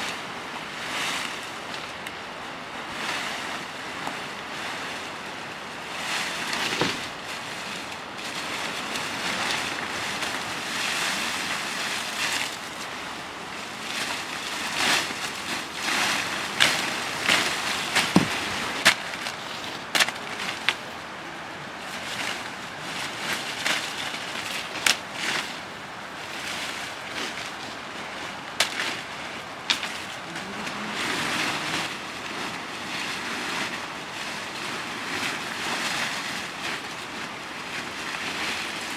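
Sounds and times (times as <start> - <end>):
leafy branches rustling: 0.0 - 38.9
hand blade chopping branches: 14.0 - 20.8, 28.5 - 29.0, 29.7 - 32.4.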